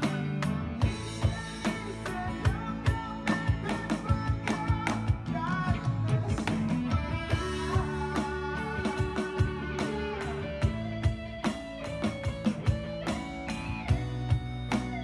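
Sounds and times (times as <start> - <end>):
electric guitar chords: 0.0 - 15.0
electronic drum beat: 0.0 - 15.0.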